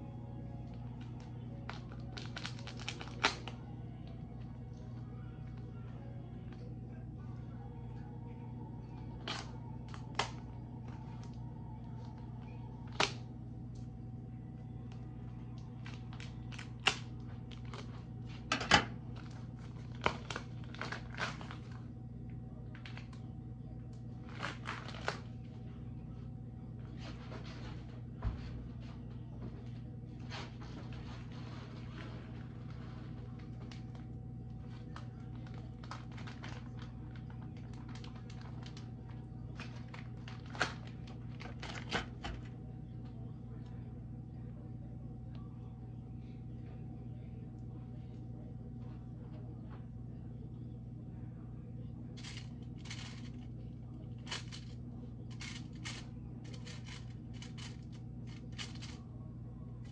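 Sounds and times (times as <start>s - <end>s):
steady low hum: 0.0s - 59.9s
plastic packaging crinkling: 0.9s - 4.2s, 15.7s - 21.8s, 24.2s - 25.3s, 34.7s - 42.5s, 52.2s - 53.5s, 54.1s - 59.0s.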